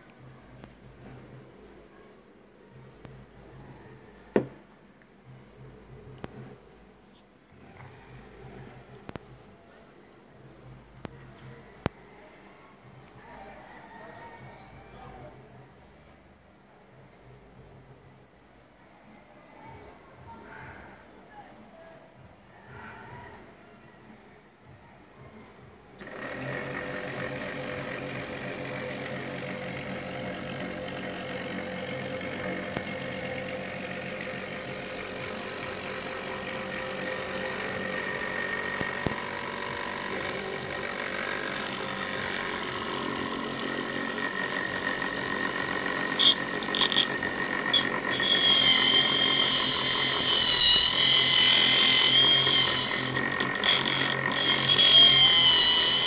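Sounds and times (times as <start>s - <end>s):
electric motor whining: 26.0s - 56.0s.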